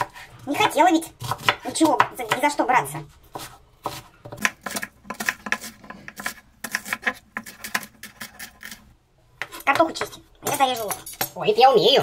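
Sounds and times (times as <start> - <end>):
knife chopping on wooden board: 0.0 - 2.6, 3.3 - 8.8.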